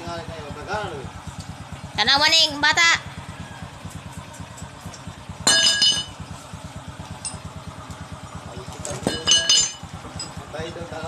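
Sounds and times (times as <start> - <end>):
engine idling: 0.0 - 11.0
metallic clank: 5.4 - 6.2, 8.8 - 10.5.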